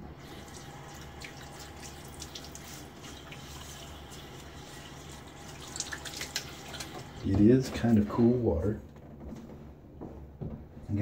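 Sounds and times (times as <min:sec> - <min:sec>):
sink tap running: 0:00.0 - 0:08.1
water splashing and dripping: 0:00.1 - 0:07.4.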